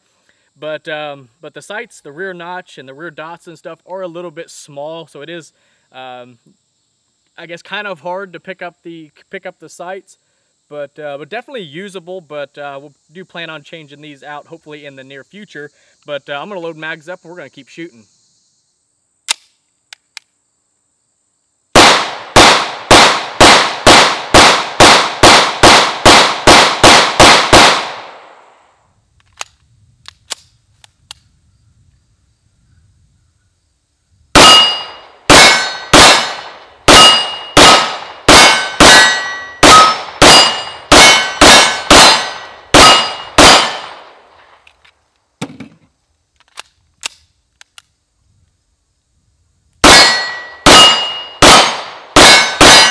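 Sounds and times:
pistol shots: 0:21.8 - 0:28.4, 0:34.4 - 0:44.2, 0:49.8 - 0:52.9
steel targets ringing when hit: 0:34.4 - 0:36.0, 0:36.9 - 0:37.6, 0:38.4 - 0:43.8, 0:49.9 - 0:51.4, 0:52.2 - 0:52.9.

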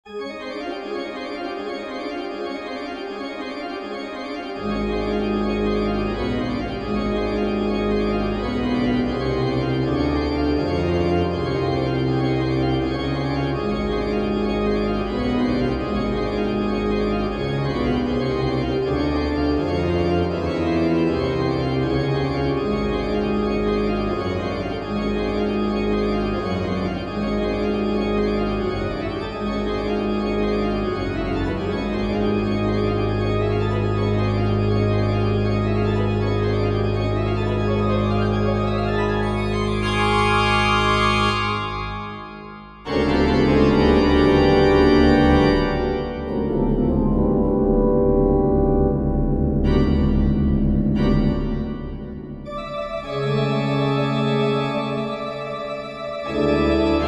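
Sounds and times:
low organ pedal bass: 0:00.1 - 0:57.0
pipe organ chords: 0:00.1 - 0:57.0.

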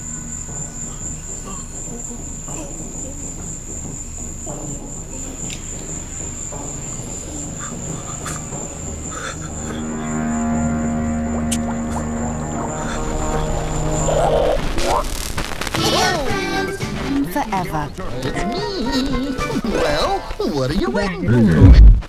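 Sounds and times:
music with held tones: 0:00.0 - 0:20.8
crickets chirping: 0:00.0 - 0:21.8
low hum: 0:07.2 - 0:15.8.

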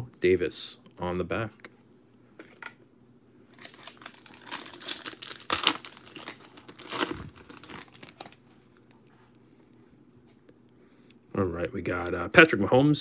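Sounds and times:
plastic wrapper tearing and crinkling: 0:03.5 - 0:08.4.

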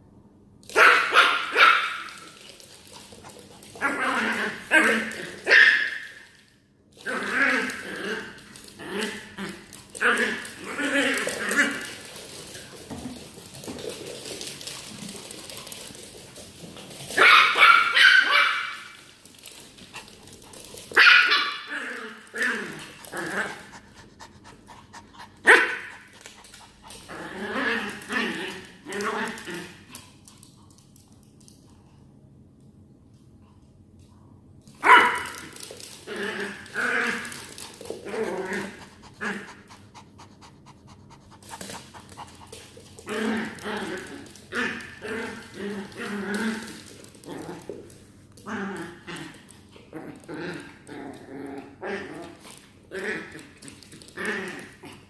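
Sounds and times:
dogs scuffling on hard floor: 0:00.7 - 0:32.1, 0:34.6 - 0:55.0
small dogs panting: 0:23.6 - 0:26.9.

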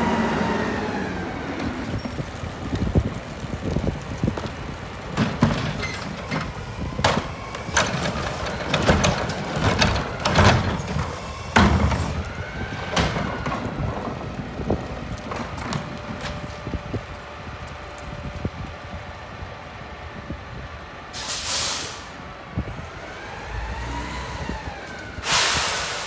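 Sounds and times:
cart rolling: 0:00.0 - 0:19.5
garbage truck idling: 0:00.0 - 0:26.0
cart banging against metal can: 0:05.1 - 0:12.2.

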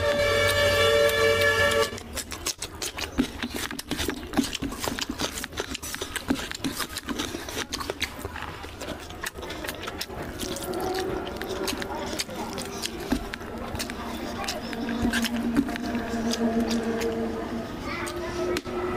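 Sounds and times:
horn-like chord: 0:00.0 - 0:02.0
chewing: 0:00.0 - 0:18.9
hand squishing rice in curry: 0:00.2 - 0:17.2.

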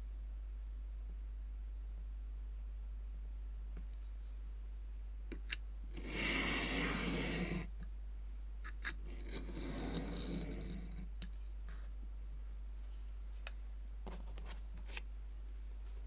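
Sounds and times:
knife cutting paper along ruler: 0:06.0 - 0:07.7, 0:08.8 - 0:11.1
blade and ruler ticks: 0:08.6 - 0:11.3.

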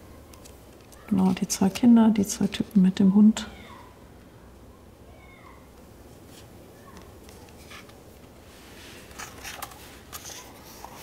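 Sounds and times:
paper page rustling: 0:08.6 - 0:11.0.

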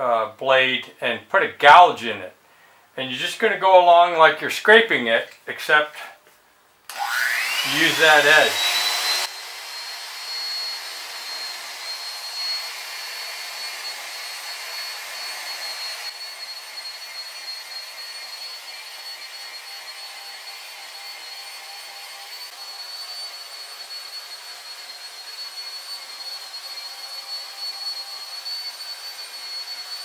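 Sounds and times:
power scraper motor whine: 0:06.9 - 0:30.0.

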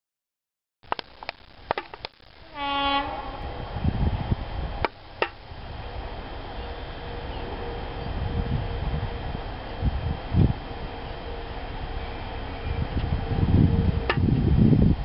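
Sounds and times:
diesel train rumbling: 0:00.9 - 0:15.0
train horn blast: 0:02.4 - 0:03.8, 0:06.6 - 0:09.3.

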